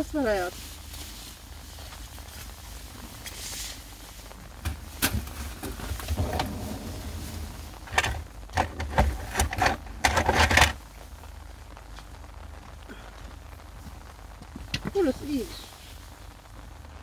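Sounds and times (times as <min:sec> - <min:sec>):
rustling: 0:00.3 - 0:16.7
sharp clicks and knocks: 0:06.0 - 0:10.8.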